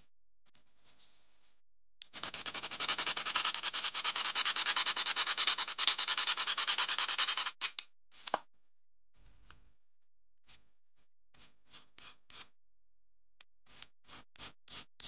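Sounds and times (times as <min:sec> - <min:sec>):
sanding block scraping: 0:02.2 - 0:07.6.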